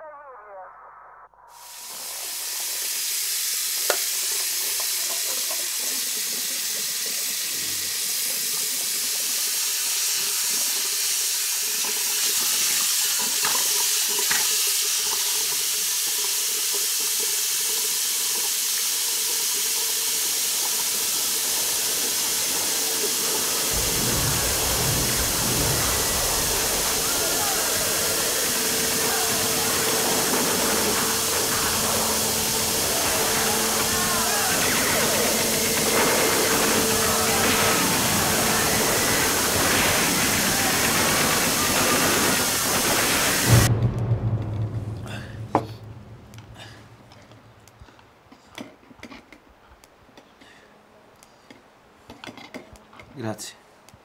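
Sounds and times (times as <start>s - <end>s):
tap water running into sink: 2.0s - 43.5s
low rumble: 23.7s - 36.0s, 43.5s - 47.6s.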